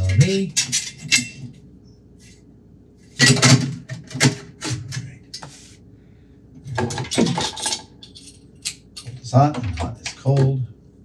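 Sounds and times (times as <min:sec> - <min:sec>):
metal clattering in a sink: 0:00.0 - 0:01.6, 0:03.2 - 0:05.0, 0:06.6 - 0:10.5.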